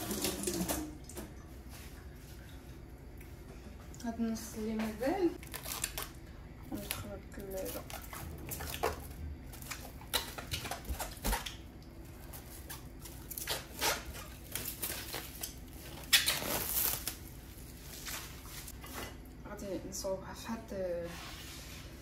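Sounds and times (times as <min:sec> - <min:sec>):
cling film crinkling: 0:05.4 - 0:08.9, 0:09.5 - 0:18.8.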